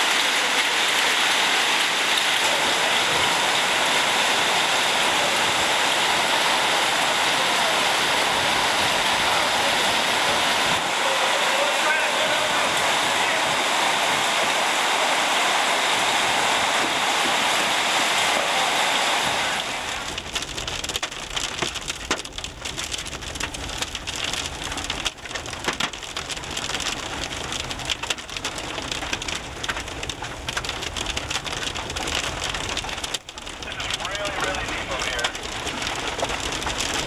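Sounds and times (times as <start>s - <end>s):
car driving on flooded road: 0.0s - 37.0s
heavy rain hissing: 0.0s - 37.0s
taps against windshield: 20.8s - 23.0s, 24.9s - 26.0s.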